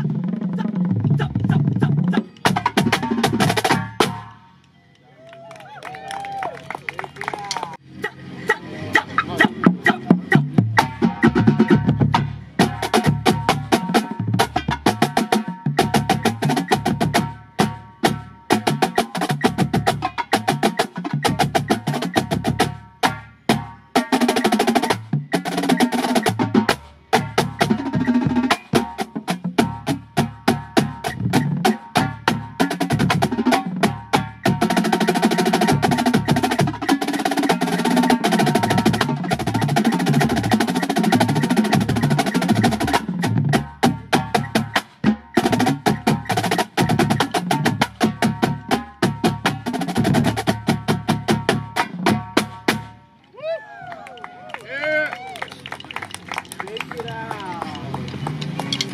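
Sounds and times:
marching snare drums: 0:00.0 - 0:04.4, 0:08.0 - 0:53.0
tenor drums: 0:00.0 - 0:04.4, 0:07.8 - 0:53.1
bass drums: 0:08.0 - 0:53.0.

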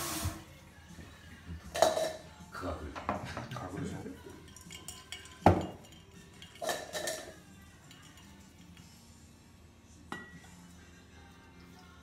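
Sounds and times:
utensils clinking on wooden counter: 0:04.4 - 0:08.8.

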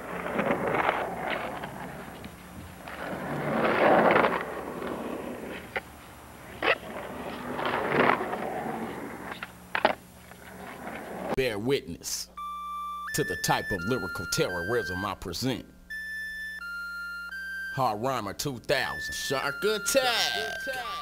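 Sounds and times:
skateboard clacks: 0:00.0 - 0:11.4
skateboard wheels rolling: 0:00.0 - 0:11.4.

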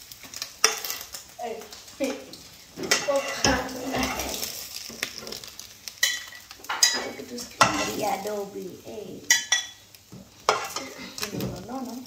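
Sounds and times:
spatula scraping a frying pan: 0:00.3 - 0:08.3, 0:09.3 - 0:11.4.

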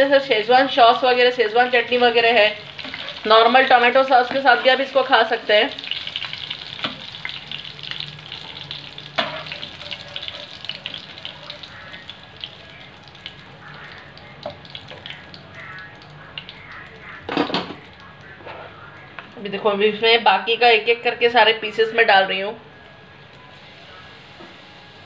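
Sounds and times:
prawns deep-frying in oil: 0:00.0 - 0:20.0, 0:23.0 - 0:25.0
metal skimmer in pan: 0:01.8 - 0:18.4.

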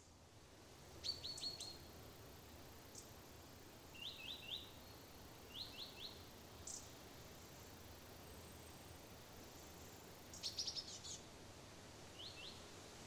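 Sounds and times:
faint low background noise: 0:00.0 - 0:13.0
songbird calling: 0:01.0 - 0:01.9, 0:03.9 - 0:07.7, 0:09.5 - 0:11.2, 0:12.2 - 0:12.7.

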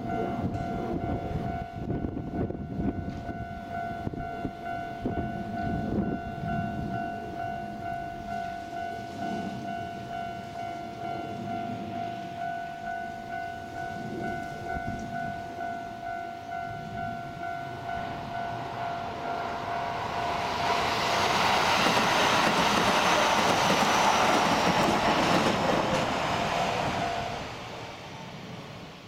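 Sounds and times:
level-crossing alarm ringing: 0:00.0 - 0:22.0
train wheel and rail noise: 0:00.0 - 0:29.0.

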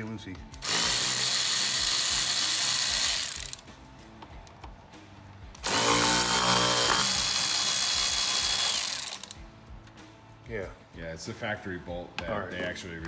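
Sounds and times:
power ratchet whining: 0:00.6 - 0:03.6, 0:05.6 - 0:09.4.

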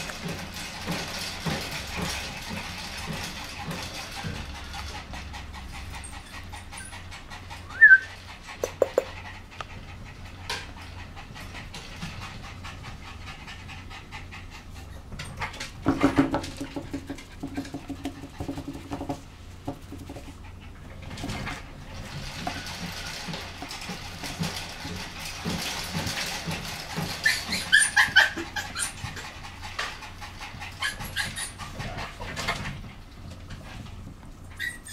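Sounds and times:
puppy panting: 0:00.0 - 0:34.9
puppy high squeak: 0:07.6 - 0:08.2, 0:27.2 - 0:29.2, 0:30.8 - 0:32.0, 0:34.5 - 0:34.9.

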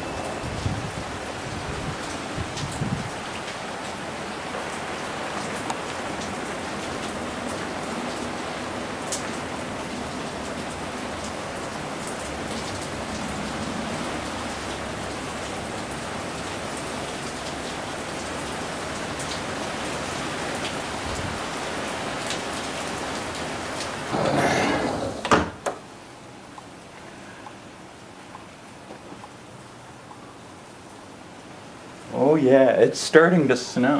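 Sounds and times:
rain falling on pool and patio: 0:00.0 - 0:33.9
sliding glass door rumbling shut: 0:24.0 - 0:25.9.

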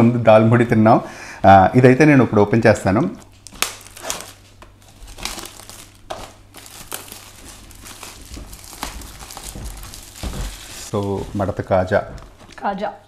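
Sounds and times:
plastic wrapping crinkling: 0:03.2 - 0:12.8.

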